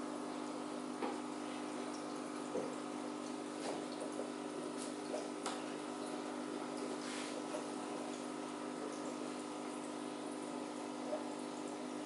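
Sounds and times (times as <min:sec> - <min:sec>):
aquarium pump humming: 0:00.0 - 0:12.0
water trickling: 0:00.0 - 0:12.0
faint clicks or drips: 0:01.0 - 0:09.3.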